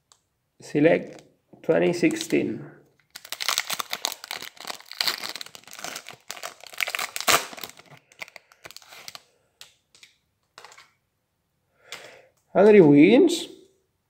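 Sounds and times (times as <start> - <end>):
foil wrapper tearing and crinkling: 3.0 - 9.3.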